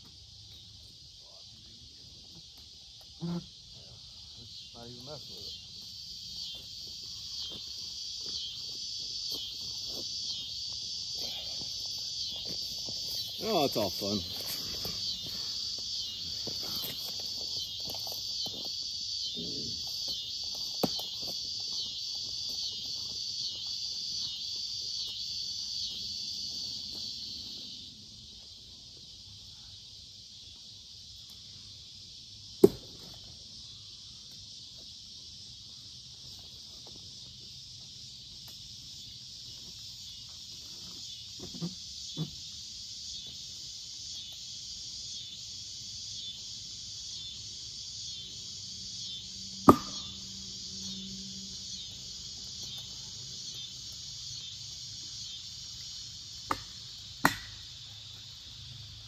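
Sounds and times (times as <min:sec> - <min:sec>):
insect chorus: 0:00.0 - 0:59.0
sharp knocks: 0:49.7 - 0:50.1.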